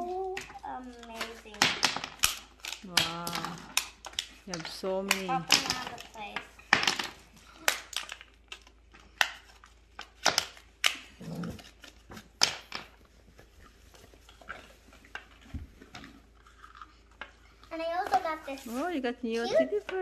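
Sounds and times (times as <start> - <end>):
plastic blister packaging clicks: 0.3 - 11.1.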